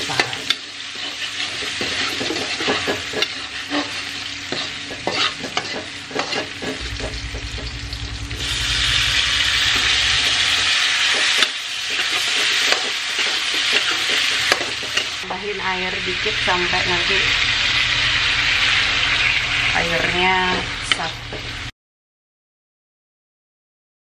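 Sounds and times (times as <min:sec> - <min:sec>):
food sizzling in oil: 0:00.0 - 0:21.7
spatula scraping in a wok: 0:00.0 - 0:21.7.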